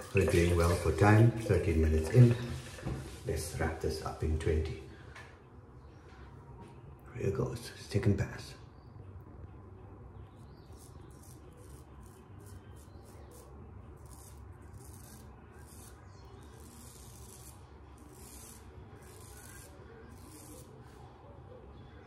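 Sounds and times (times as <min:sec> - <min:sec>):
straight razor scraping stubble: 0:10.5 - 0:21.0.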